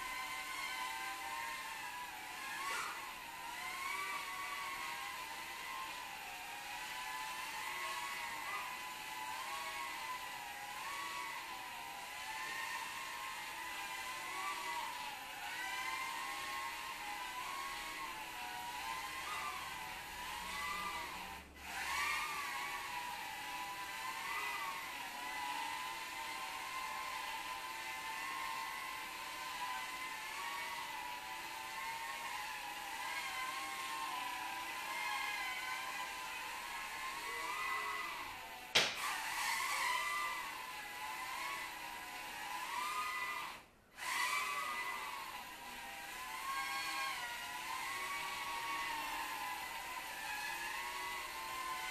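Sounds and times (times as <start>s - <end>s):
small drone motors whining: 0.0s - 51.9s
sharp knock: 38.8s - 39.0s.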